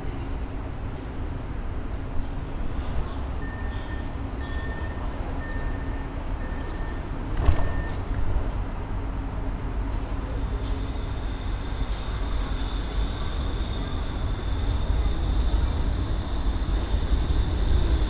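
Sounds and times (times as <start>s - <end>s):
tram equipment humming: 0.0s - 18.0s.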